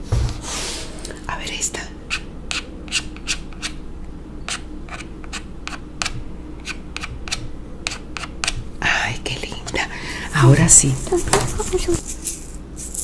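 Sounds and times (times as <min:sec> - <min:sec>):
razor scraping plastic: 0:11.0 - 0:13.0.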